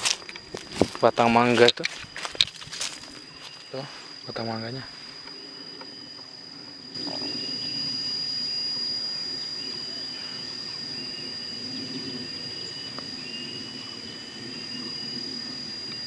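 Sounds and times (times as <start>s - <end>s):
high-pitched insect drone: 0.0s - 16.0s.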